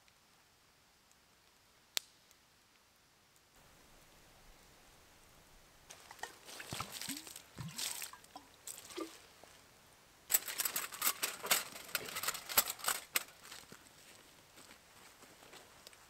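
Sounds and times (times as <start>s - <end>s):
dry leaves rustling: 5.9s - 9.6s, 10.3s - 16.0s
camp gear knocking and scraping: 10.3s - 13.7s.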